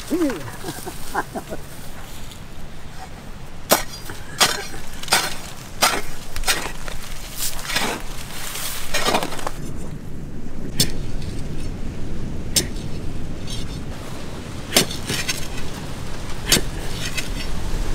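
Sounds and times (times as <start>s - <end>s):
digging tool striking stony soil: 3.6s - 9.9s, 10.7s - 11.7s, 12.5s - 13.7s, 14.7s - 15.7s, 16.4s - 17.5s.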